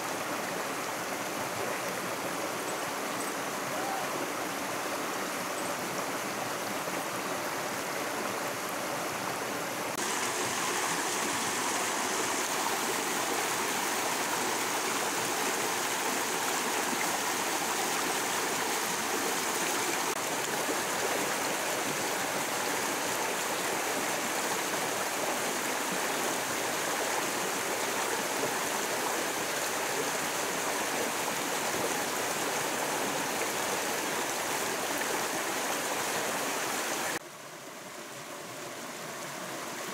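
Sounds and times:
stream flowing over stones: 0.0s - 39.9s.

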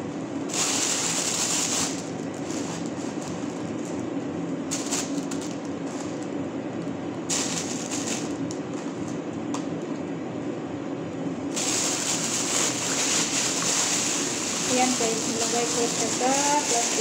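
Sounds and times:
steady fan hum: 0.0s - 17.0s
plastic bag rustling and crinkling: 1.2s - 4.0s, 11.6s - 17.0s.

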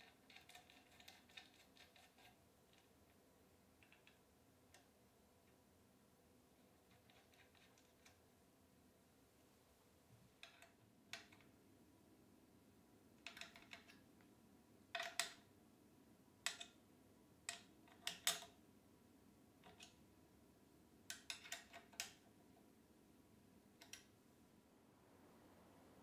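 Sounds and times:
screwdriver clicking on metal plate: 15.0s - 15.4s, 17.5s - 18.6s, 21.1s - 22.2s.

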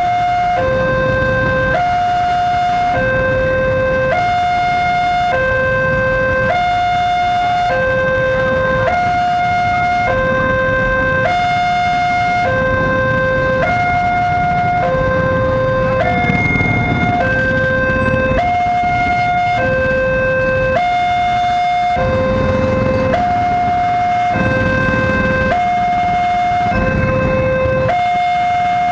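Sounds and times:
level crossing two-tone alarm: 0.0s - 28.9s.

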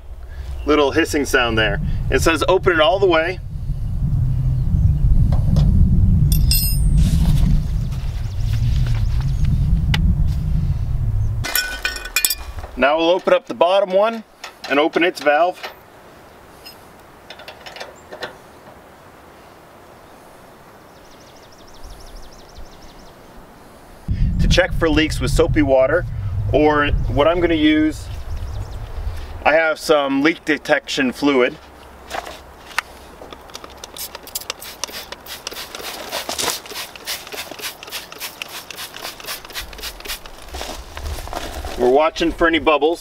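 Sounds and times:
sharp metallic clicks: 33.3s - 35.9s
trigger spray bottle squirting: 33.6s - 40.4s.

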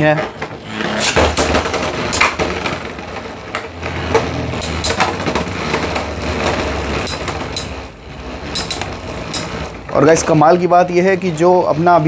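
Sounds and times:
spinning tops whirring: 1.0s - 12.0s
spinning tops clacking together: 3.7s - 6.0s, 8.4s - 9.6s.

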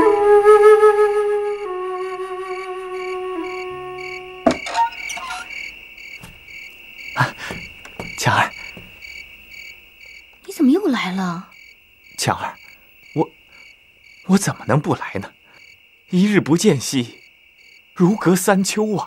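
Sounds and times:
crickets chirping: 0.0s - 19.0s
short knocks: 5.6s - 9.3s.

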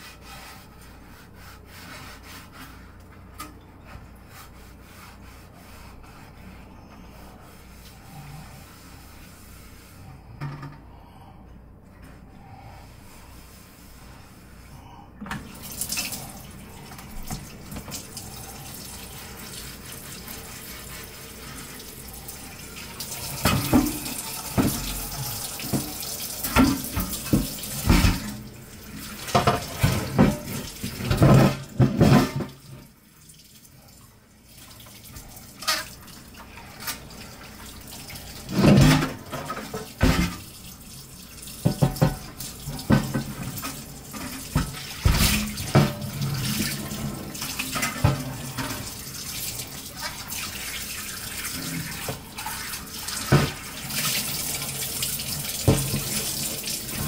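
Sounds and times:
tap running into sink: 23.2s - 28.4s, 41.6s - 49.0s, 53.2s - 57.0s
dishes clattering under water: 23.3s - 28.4s, 29.3s - 32.7s, 41.6s - 49.0s.

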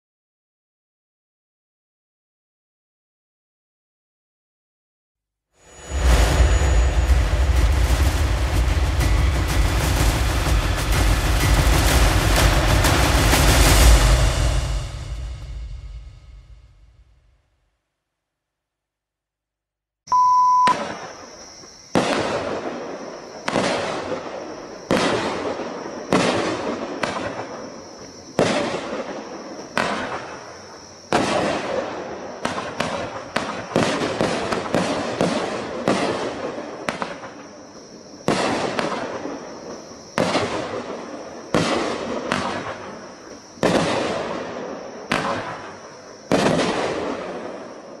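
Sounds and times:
short electronic beep: 20.1s - 20.8s
firework shots banging: 21.9s - 37.4s, 38.2s - 47.8s.

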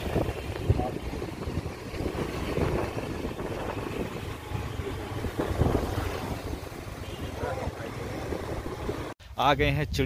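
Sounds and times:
motor scooter engine and road noise: 0.0s - 9.2s
wind buffeting microphone: 0.0s - 9.2s.

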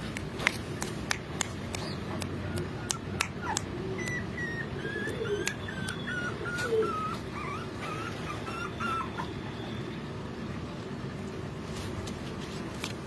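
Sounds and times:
puppy whimpering: 1.7s - 9.5s.

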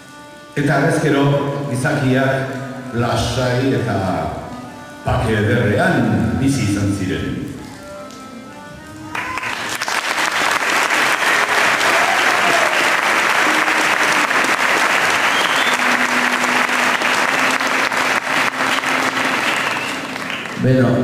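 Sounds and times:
audience applauding: 9.1s - 21.0s.

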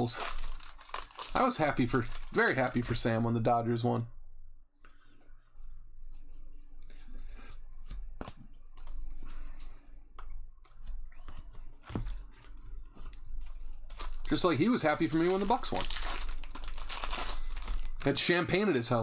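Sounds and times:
cards rustling and rubbing: 6.0s - 18.0s.

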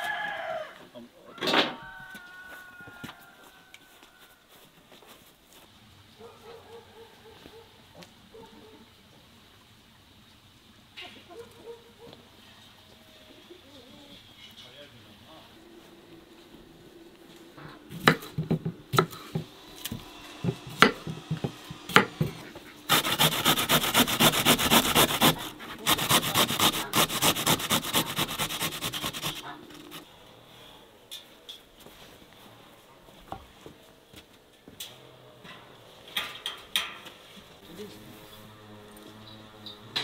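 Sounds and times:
cucumber grating on metal grater: 22.9s - 30.0s.

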